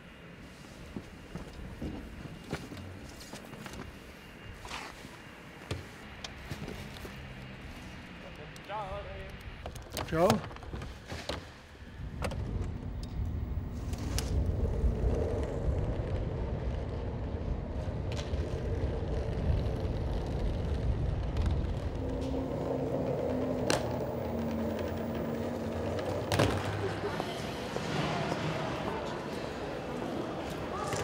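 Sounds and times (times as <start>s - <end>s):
faint hum: 11.6s - 31.0s
steady low rumble: 11.8s - 27.8s.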